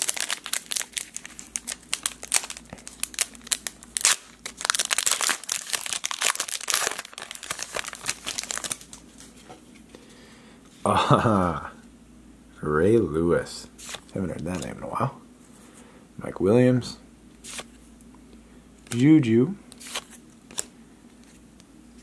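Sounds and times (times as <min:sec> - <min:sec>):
foil wrapper tearing and crinkling: 0:00.0 - 0:09.3.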